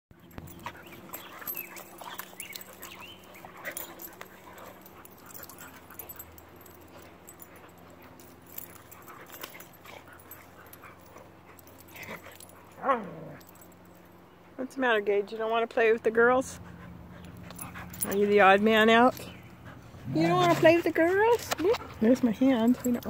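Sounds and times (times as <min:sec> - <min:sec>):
dogs scuffling: 0:00.2 - 0:14.1, 0:17.1 - 0:23.0
dogs vocalizing: 0:00.2 - 0:14.5.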